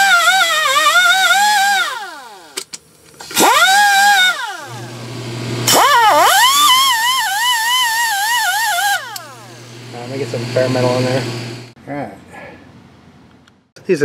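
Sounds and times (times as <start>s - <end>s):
wire wheel brush whining: 5.6s - 11.3s
steady low hum: 8.1s - 13.8s.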